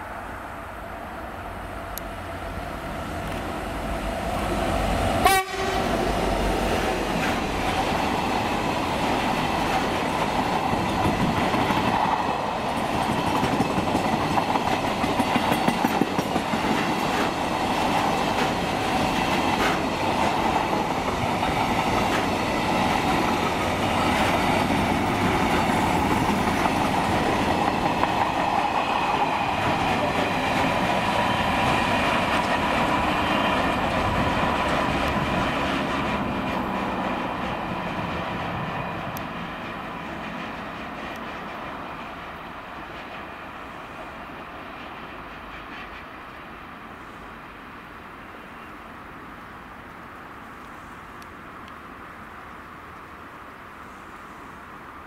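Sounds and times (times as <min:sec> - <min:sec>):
train wheels clattering over rail joints: 0:07.1 - 0:41.6.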